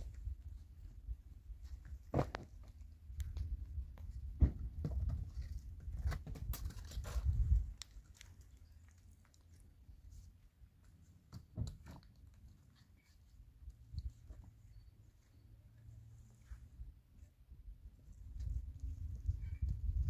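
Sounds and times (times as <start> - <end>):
person climbing over rock: 1.5 - 9.8.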